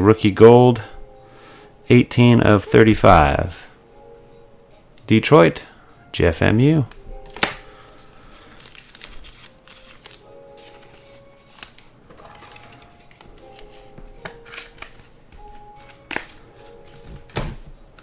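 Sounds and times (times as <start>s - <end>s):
faint background music: 0.0s - 18.0s
trading card clicks and taps: 13.1s - 18.0s.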